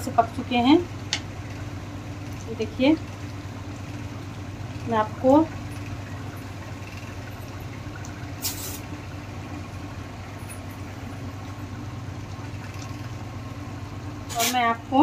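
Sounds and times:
steady low hum: 0.0s - 15.0s
gravy bubbling in a pan: 0.9s - 14.2s.

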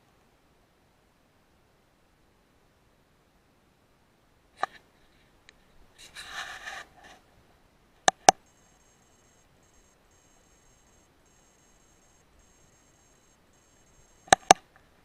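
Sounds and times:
high-pitched electronic whine: 8.4s - 14.6s.

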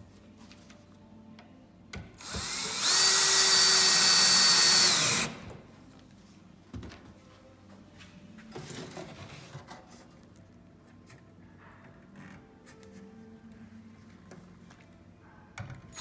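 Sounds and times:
power drill driving a screw: 2.2s - 5.5s.

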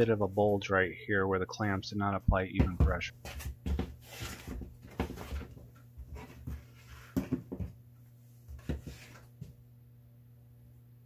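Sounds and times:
low steady hum: 0.0s - 11.0s
shoes knocking on wooden bench: 2.5s - 7.8s.

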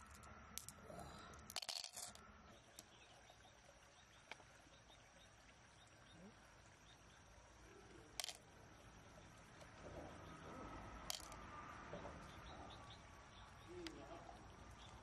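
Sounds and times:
mussel shells clicking: 0.0s - 2.2s, 8.2s - 8.4s, 11.0s - 11.4s
faint outdoor background: 0.0s - 15.0s.

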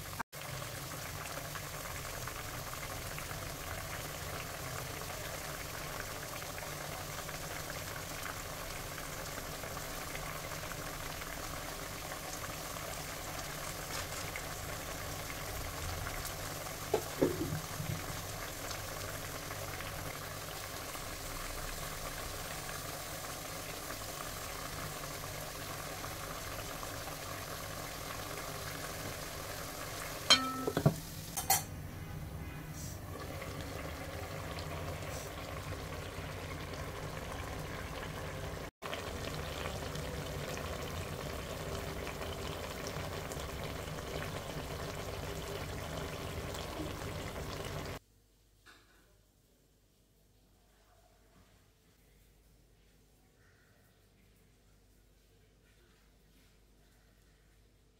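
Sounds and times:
curry bubbling in a pan: 0.0s - 31.4s, 33.1s - 48.0s.

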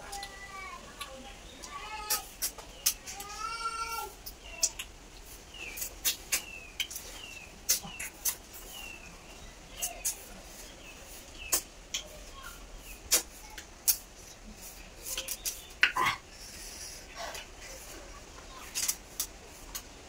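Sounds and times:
bird chirping: 5.5s - 13.6s.

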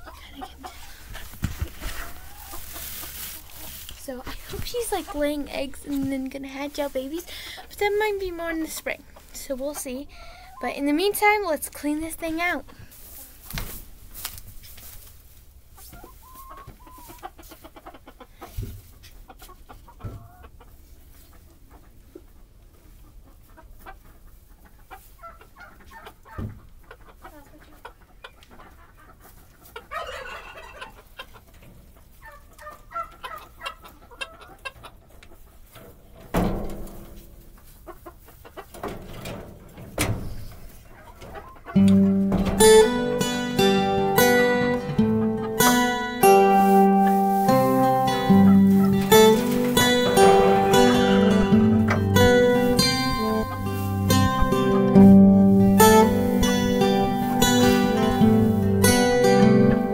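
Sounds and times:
chickens clucking: 0.0s - 59.9s
acoustic guitar music: 1.9s - 12.6s, 41.6s - 59.9s.

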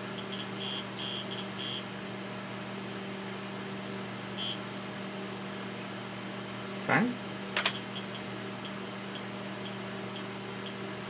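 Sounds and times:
computer fan hum: 0.0s - 11.0s.

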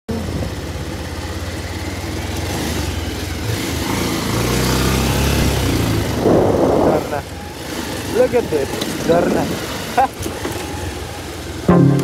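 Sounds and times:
motorcycle engine running: 0.1s - 12.0s.

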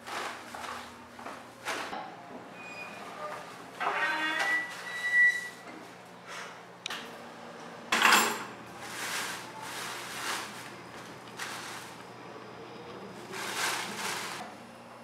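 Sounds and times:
plastic bag rustling: 0.0s - 1.8s, 8.7s - 12.2s, 13.0s - 14.4s.

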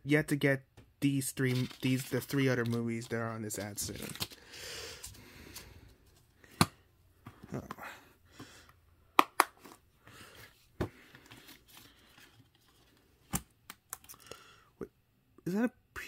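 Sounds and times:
paper and cardboard rustling: 1.4s - 4.4s, 9.6s - 13.1s.

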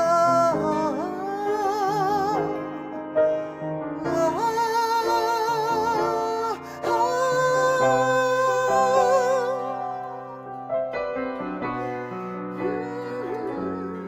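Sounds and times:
piano: 0.0s - 14.0s
woman singing with vibrato: 12.6s - 14.0s.

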